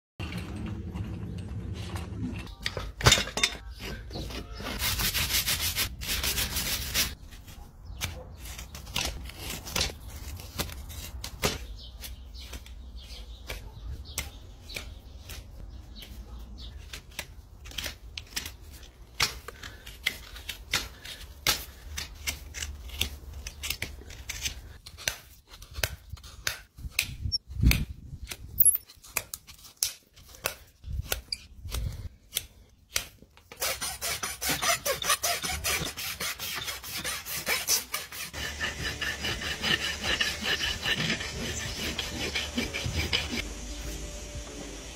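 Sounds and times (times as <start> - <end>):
rasp filing hoof: 3.6 - 7.4, 33.5 - 43.5
tools clicking and snipping hoof: 16.8 - 33.6.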